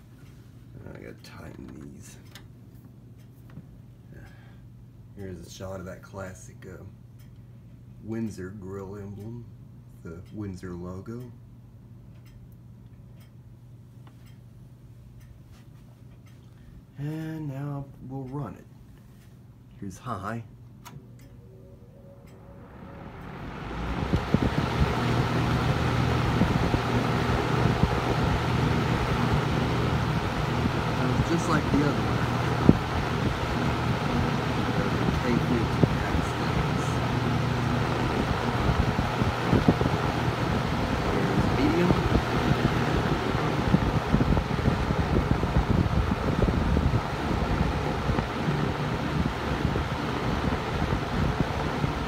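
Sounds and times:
box fan air rush and hum: 0:13.6 - 0:52.0
air buffeting microphone: 0:21.0 - 0:52.0.

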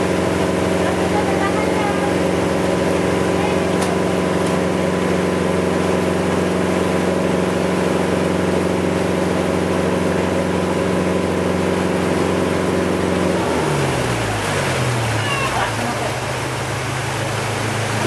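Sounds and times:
boat engine droning: 0:00.0 - 0:18.0.

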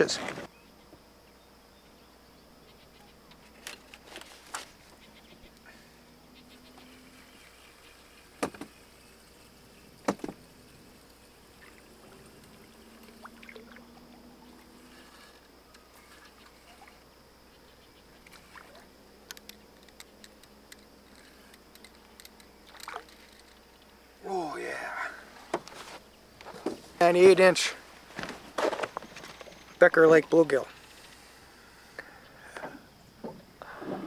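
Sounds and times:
water lapping and trickling: 0:03.2 - 0:24.6.

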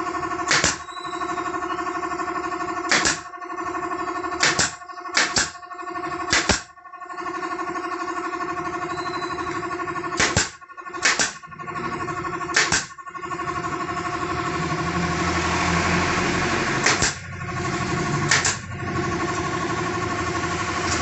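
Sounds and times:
air compressor motor humming: 0:00.0 - 0:21.0
nail gun firing: 0:00.2 - 0:01.5, 0:02.6 - 0:06.8, 0:09.4 - 0:13.0, 0:16.6 - 0:20.0.

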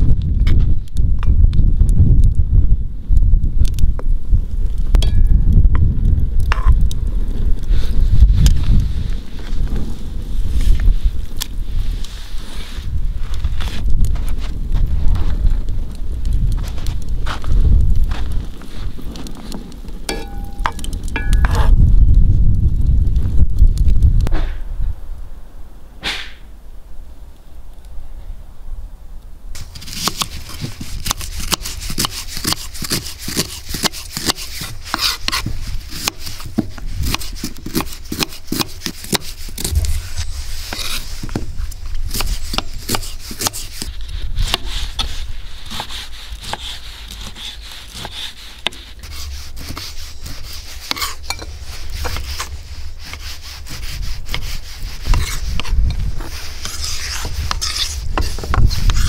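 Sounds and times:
wind rumble on microphone: 0:00.0 - 0:25.9, 0:26.9 - 0:59.0.

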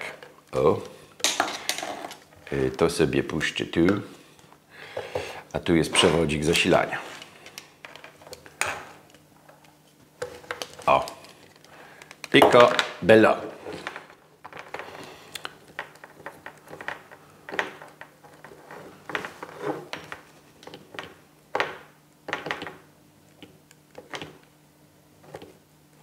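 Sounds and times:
cable clicking and rustling: 0:06.0 - 0:21.7.

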